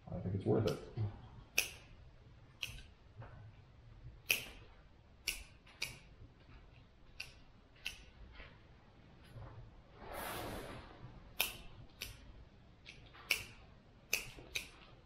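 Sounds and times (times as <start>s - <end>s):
hand pruners snipping: 1.5s - 1.9s, 4.2s - 4.6s, 5.2s - 6.1s, 7.1s - 8.1s, 11.4s - 12.2s, 12.8s - 14.8s.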